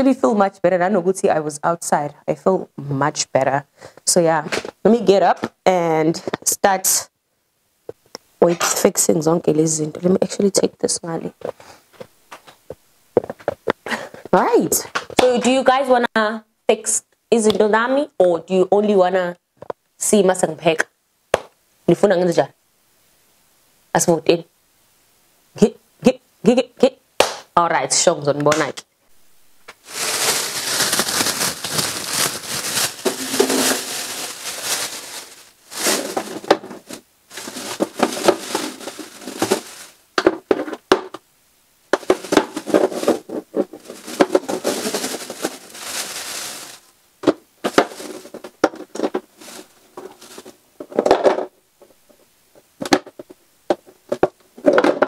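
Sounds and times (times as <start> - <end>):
plastic bag crinkling: 29.8 - 40.1, 42.0 - 46.9, 47.6 - 50.6.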